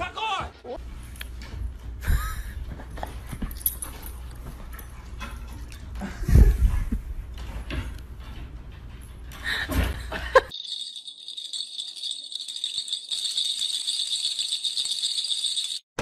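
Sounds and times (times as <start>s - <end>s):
high jingling rattle: 10.5s - 16.0s.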